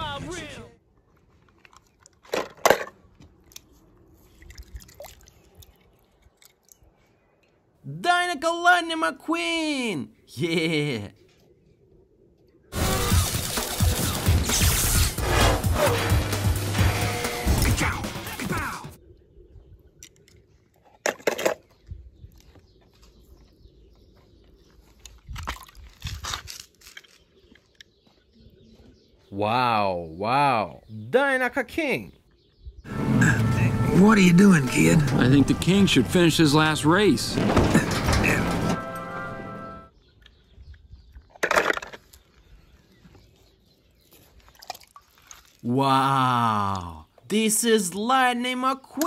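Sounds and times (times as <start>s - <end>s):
loud crunchy noises: 0.9s - 4.1s, 12.7s - 18.8s, 24.8s - 28.0s, 32.9s - 39.8s.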